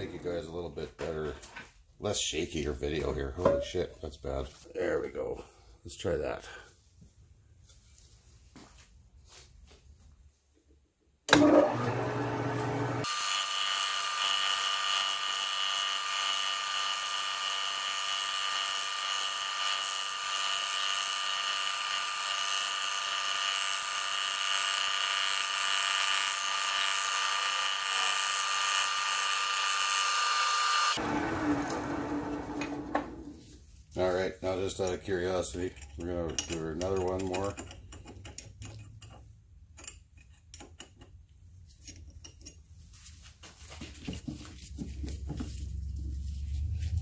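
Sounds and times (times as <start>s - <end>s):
lathe spindle whining while cutting: 11.4s - 33.0s.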